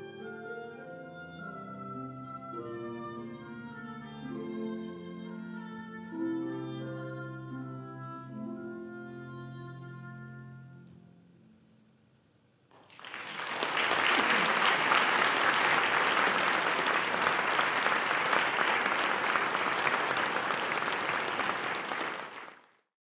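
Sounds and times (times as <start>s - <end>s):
audience applauding: 12.8s - 22.8s.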